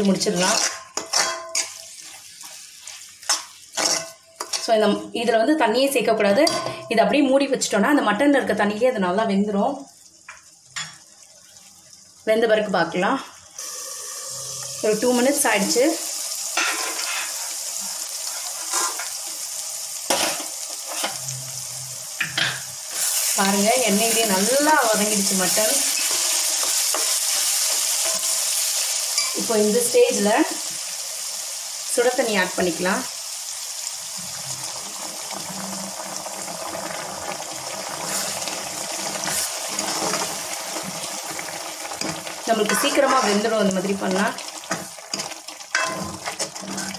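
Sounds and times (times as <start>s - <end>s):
water hissing in hot pan: 0.0s - 4.8s, 9.9s - 12.3s, 13.4s - 46.9s
meat sizzling in oil: 0.0s - 5.2s, 13.4s - 46.9s
steel ladle stirring: 0.4s - 2.2s, 42.0s - 43.6s, 44.7s - 46.9s
pan or lid clattering: 45.1s - 46.9s.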